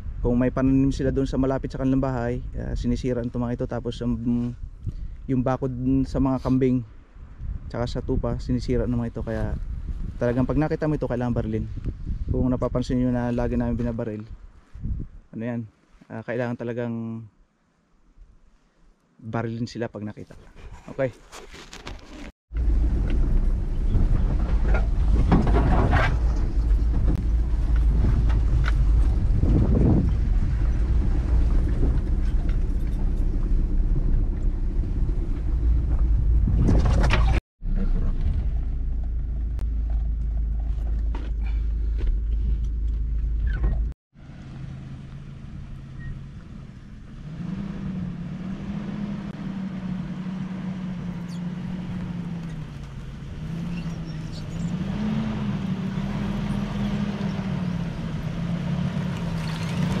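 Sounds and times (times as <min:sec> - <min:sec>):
truck engine and road noise in cab: 0:21.7 - 1:00.0
truck engine heard from outside: 0:22.5 - 1:00.0.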